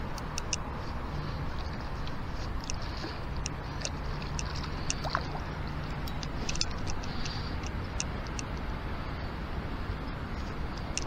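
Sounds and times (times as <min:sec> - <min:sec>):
steady low rumble: 0:00.0 - 0:11.0
fishing reel ticking: 0:02.0 - 0:08.5.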